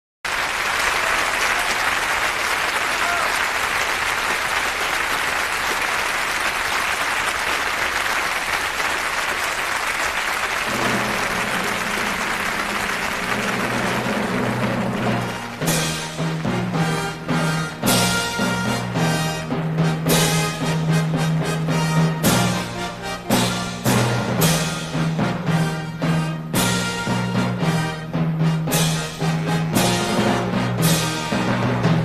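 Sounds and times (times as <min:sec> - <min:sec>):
audience applauding: 0:00.3 - 0:17.6
low held musical chord: 0:10.7 - 0:15.6.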